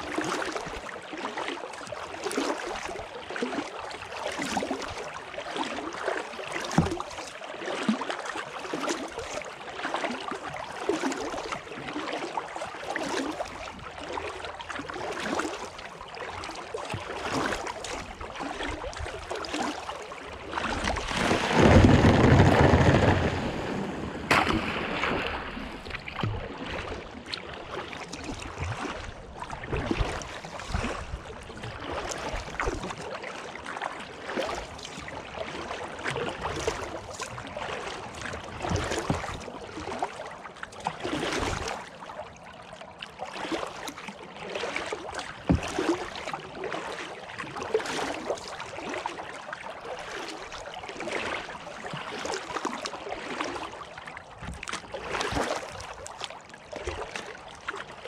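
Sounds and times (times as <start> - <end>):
kayak paddle strokes: 12.2 - 33.0, 36.3 - 42.1, 43.0 - 49.3, 50.9 - 57.9.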